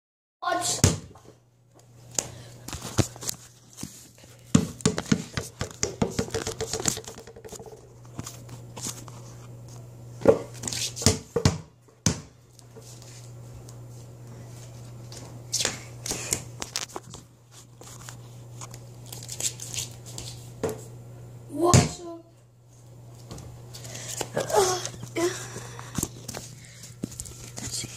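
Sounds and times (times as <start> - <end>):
basketball bouncing on hardwood: 4.5 - 7.7, 11.0 - 12.3.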